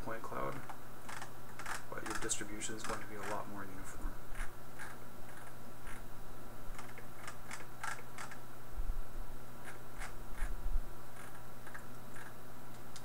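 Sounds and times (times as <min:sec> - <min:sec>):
low electrical hum: 0:00.0 - 0:13.0
computer mouse clicks: 0:00.6 - 0:03.4, 0:06.7 - 0:08.4, 0:09.6 - 0:10.6, 0:11.2 - 0:13.0.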